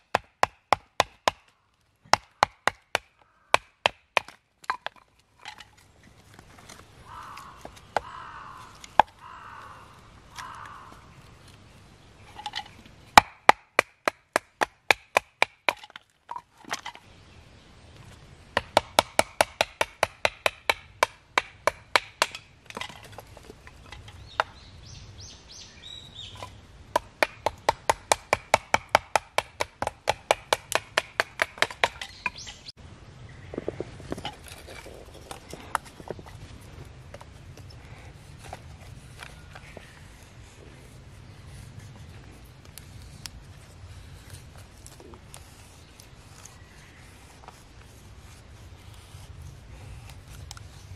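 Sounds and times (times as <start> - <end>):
blade chopping dry firewood: 0.0 - 11.0, 12.3 - 17.1, 18.5 - 24.6, 26.3 - 32.7.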